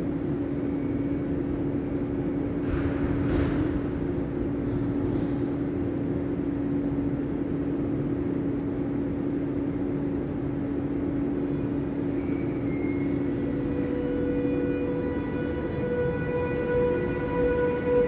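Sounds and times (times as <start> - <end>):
higher whine of steady tones: 0.0 - 18.0
low rumble and hum: 0.0 - 18.0
droning tones: 11.2 - 18.0.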